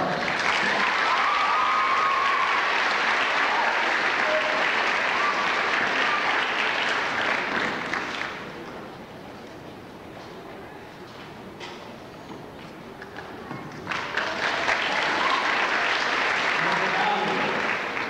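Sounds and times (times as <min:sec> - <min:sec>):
audience applauding: 0:00.0 - 0:08.6, 0:13.9 - 0:18.0.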